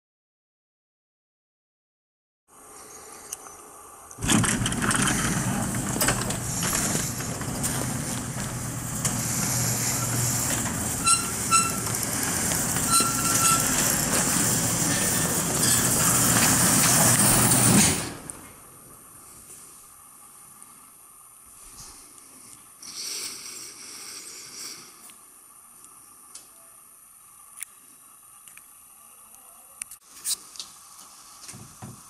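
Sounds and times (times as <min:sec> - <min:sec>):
garage door motor hum and rumble: 0:04.2 - 0:18.8
short squeaks: 0:09.0 - 0:17.9.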